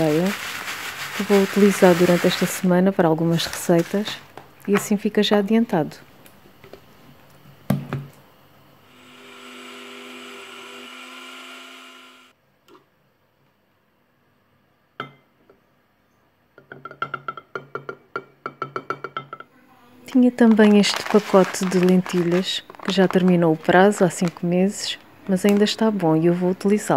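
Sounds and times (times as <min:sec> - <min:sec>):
blender motor whine: 0:08.9 - 0:12.3.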